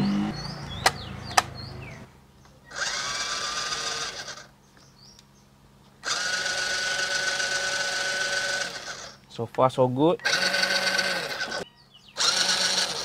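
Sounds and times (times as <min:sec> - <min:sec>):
electric motor whine: 0:02.7 - 0:04.5, 0:06.0 - 0:09.2, 0:10.2 - 0:13.0.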